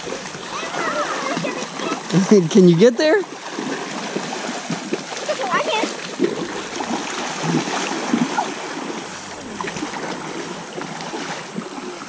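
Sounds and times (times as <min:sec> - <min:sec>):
children splashing in water: 0:00.0 - 0:12.0
creek water flowing: 0:00.0 - 0:12.0.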